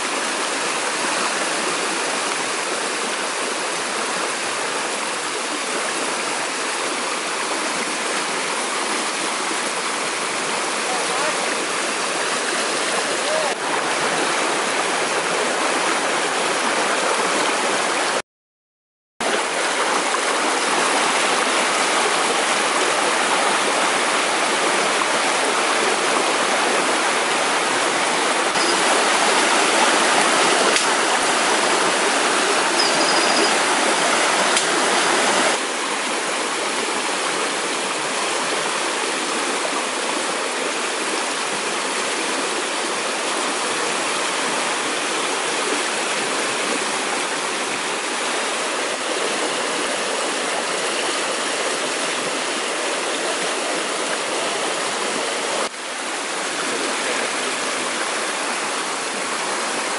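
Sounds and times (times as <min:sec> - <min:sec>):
stream water rushing: 0:00.0 - 0:18.2, 0:19.2 - 0:59.9.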